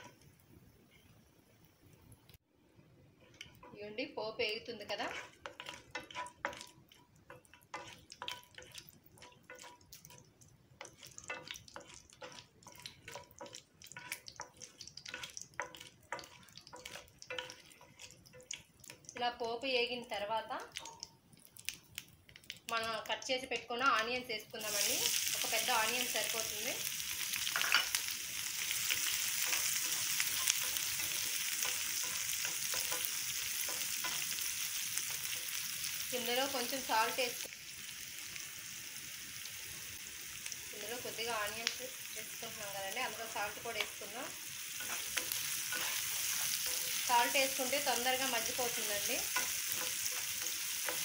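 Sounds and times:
spices crackling in hot oil: 0.0s - 51.0s
wooden spatula stirring: 3.0s - 19.4s, 27.2s - 36.7s, 43.1s - 51.0s.

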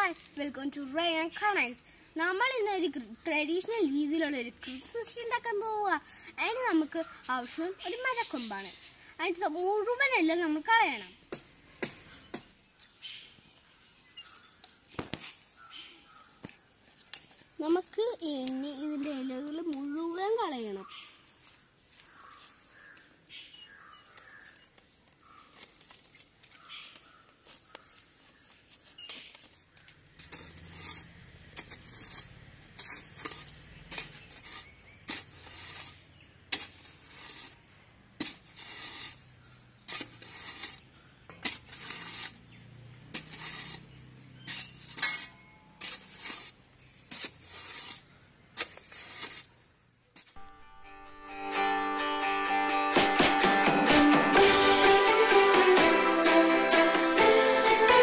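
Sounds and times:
leaves rustling: 12.0s - 50.6s
metal spade digging sandy soil: 28.9s - 50.6s.

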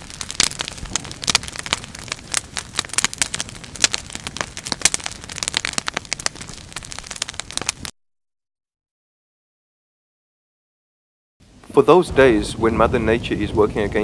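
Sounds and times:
fire crackling: 0.0s - 8.0s, 11.4s - 14.0s.

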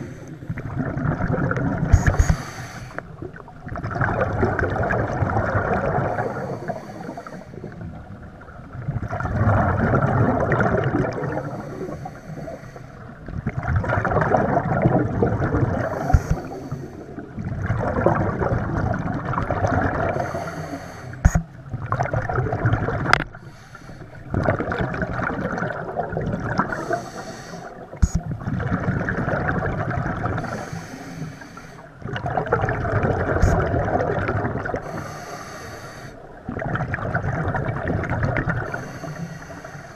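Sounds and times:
rush of exhaled bubbles: 0.0s - 12.0s, 13.2s - 20.4s, 21.3s - 23.3s, 24.3s - 30.7s, 32.0s - 35.4s, 36.3s - 39.2s
diver breathing through regulator: 2.0s - 3.1s, 6.0s - 7.7s, 11.2s - 13.1s, 15.8s - 17.2s, 20.1s - 21.5s, 23.3s - 24.3s, 26.6s - 28.2s, 30.4s - 31.9s, 34.8s - 36.2s, 38.6s - 39.9s.

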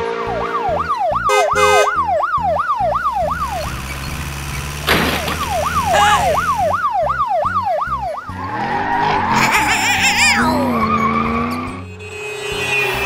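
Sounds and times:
police siren yelping: 0.3s - 4.0s, 5.4s - 11.5s.

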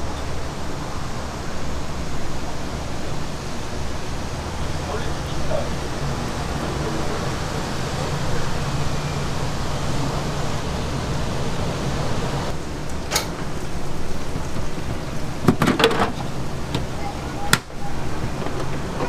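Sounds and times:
food deep-frying in oil: 12.5s - 18.3s.

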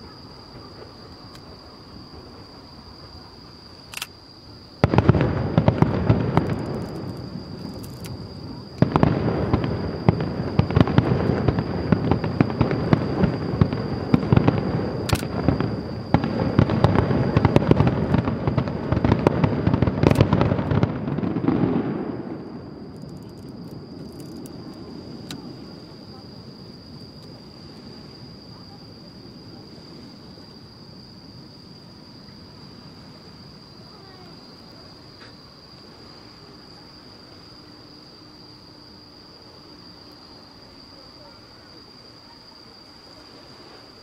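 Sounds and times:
fireworks booming and crackling: 4.8s - 30.7s.

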